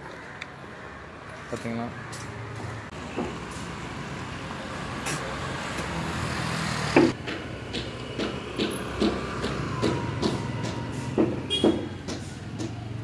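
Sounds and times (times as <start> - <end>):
vehicle engine rumble: 2.1 - 13.0
sharp knock: 7.0 - 12.8.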